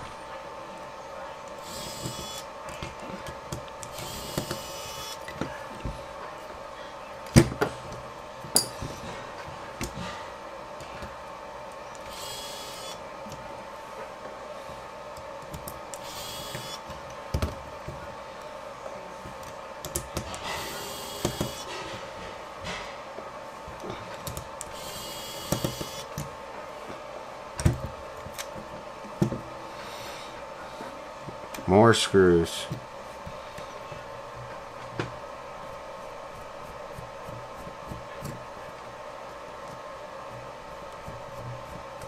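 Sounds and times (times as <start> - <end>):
faint steady hum: 0.0 - 42.0
electric screwdriver whining: 1.6 - 2.4, 3.9 - 5.2, 12.1 - 13.0, 16.0 - 16.8, 24.7 - 26.1.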